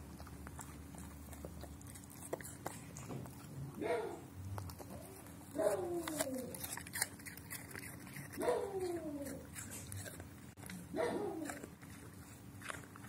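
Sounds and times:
dog crunching apple: 0.0s - 13.0s
dog whining: 3.8s - 10.2s.

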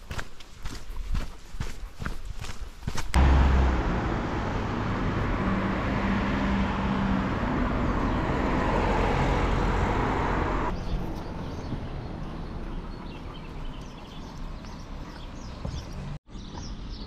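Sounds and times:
car driving past: 3.2s - 11.6s.

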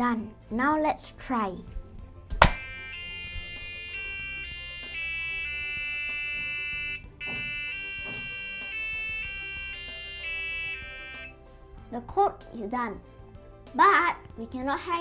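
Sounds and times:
buzzy electronic beeping melody: 2.4s - 11.3s.

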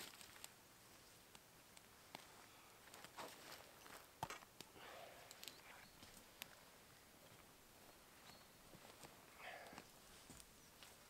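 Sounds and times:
rustling on leaf litter: 0.0s - 0.6s
campfire crackling: 0.0s - 11.0s.

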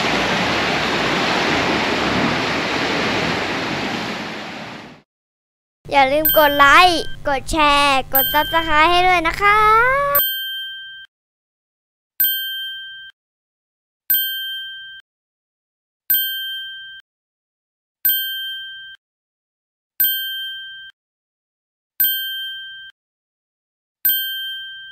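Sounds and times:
bell-like ding: 24.1s - 24.9s.

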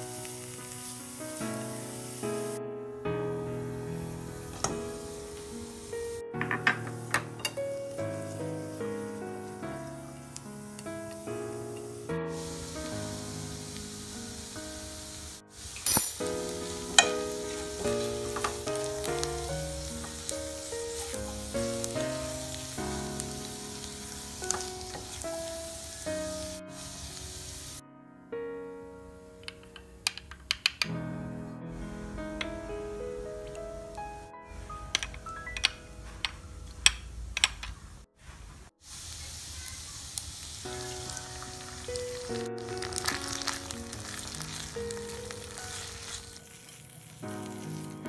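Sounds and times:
chicken sizzling in a wok: 0.0s - 2.6s, 4.4s - 9.7s, 10.3s - 27.8s, 38.8s - 48.0s
metal spoon clinking bowl: 6.5s - 7.6s, 15.8s - 16.2s
background music: 16.1s - 37.0s, 41.6s - 48.0s.

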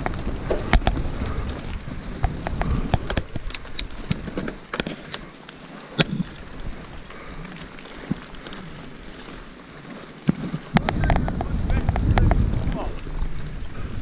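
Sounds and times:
wind on microphone: 0.0s - 5.0s, 10.3s - 14.0s
bike knocks and clatters: 0.0s - 5.3s, 10.2s - 12.8s
bike tyres rumbling over stones: 0.0s - 14.0s.

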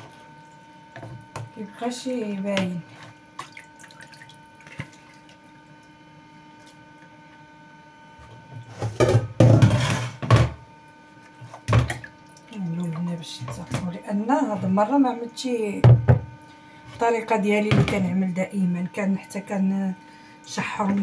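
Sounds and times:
colander clattering and scraping: 8.7s - 10.6s
colander knocking down: 8.9s - 10.6s.

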